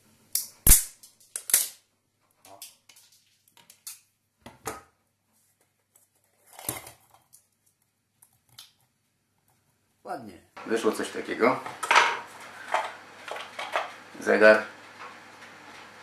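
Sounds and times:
plastic crackling grind: 0:11.7 - 0:16.0.

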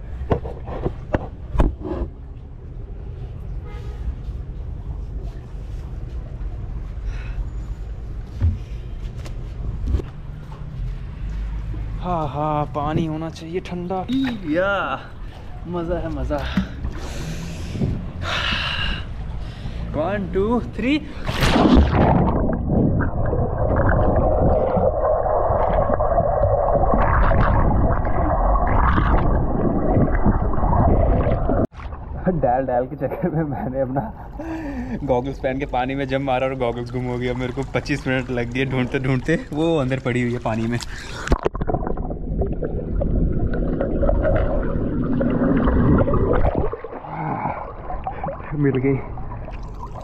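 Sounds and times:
person splashing into pool: 0:21.2 - 0:31.9
underwater gurgling bubbles: 0:21.8 - 0:31.8, 0:41.0 - 0:50.0.

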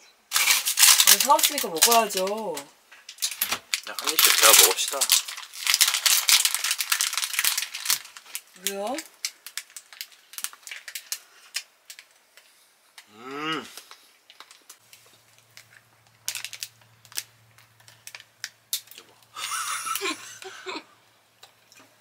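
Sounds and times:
plastic wrapper crinkling: 0:00.3 - 0:13.1, 0:13.7 - 0:20.1
person humming mmm: 0:13.1 - 0:13.8
low steady hum: 0:14.6 - 0:22.0.

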